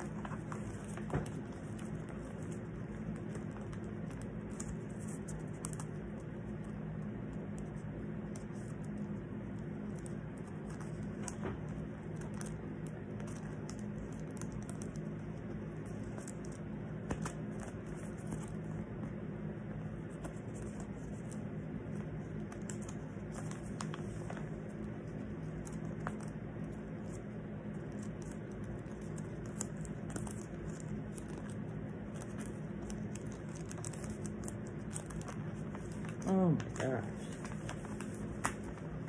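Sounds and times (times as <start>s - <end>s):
tape and paper crinkles: 20.0s - 39.0s.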